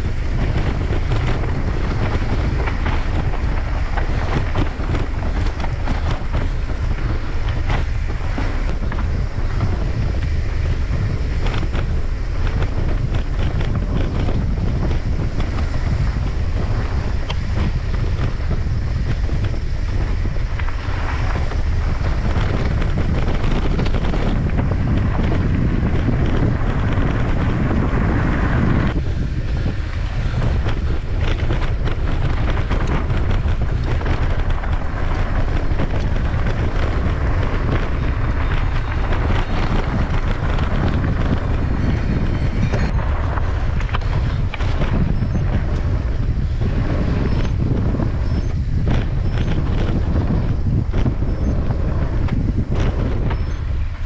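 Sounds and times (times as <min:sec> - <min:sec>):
bike rattling: 0:00.0 - 0:54.0
wind buffeting microphone: 0:00.0 - 0:54.0.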